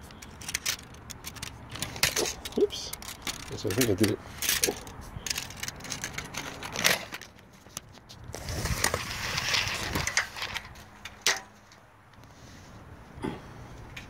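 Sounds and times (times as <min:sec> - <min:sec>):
tape measure scraping metal: 0:08.3 - 0:11.5.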